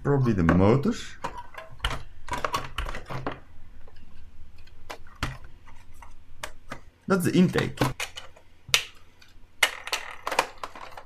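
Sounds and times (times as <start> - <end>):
plastic clicks and knocks on desk: 0.4 - 6.9.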